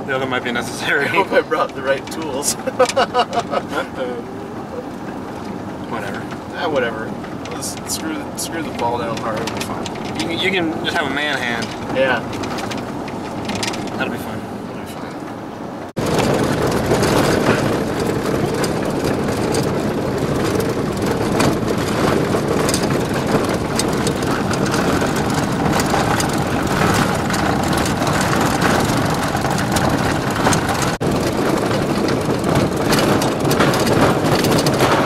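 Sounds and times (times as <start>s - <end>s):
van driving on gravel: 0.0s - 35.0s
small rattles and clicks: 5.2s - 14.1s, 16.0s - 35.0s.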